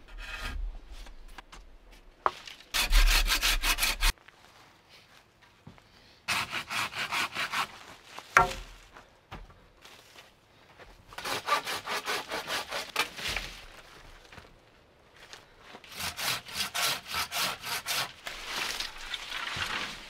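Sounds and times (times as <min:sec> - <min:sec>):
hand saw cutting bamboo: 0:02.8 - 0:04.1, 0:06.3 - 0:07.8, 0:11.2 - 0:13.4, 0:15.9 - 0:18.8.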